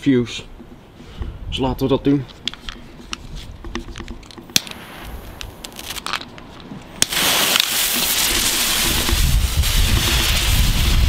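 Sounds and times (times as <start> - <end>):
fuse hissing: 7.0 - 11.0.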